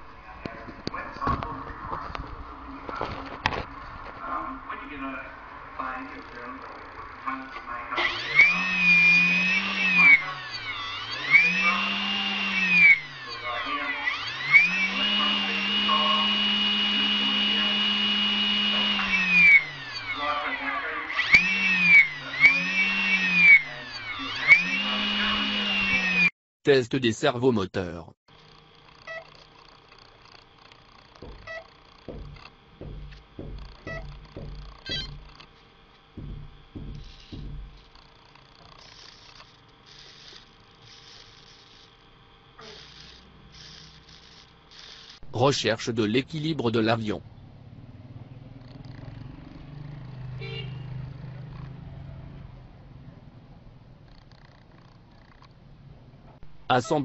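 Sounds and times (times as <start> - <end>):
electric motor whine: 0.9 - 26.3, 28.3 - 45.3
low knocks: 31.2 - 35.4, 36.1 - 37.9.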